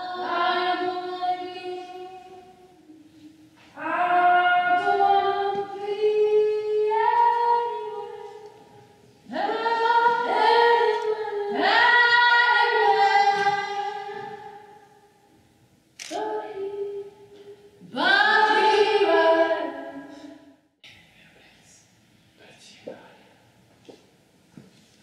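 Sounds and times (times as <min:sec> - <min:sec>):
woman singing unaccompanied: 0:00.0 - 0:03.1, 0:03.7 - 0:08.6, 0:09.2 - 0:14.7, 0:16.0 - 0:20.4.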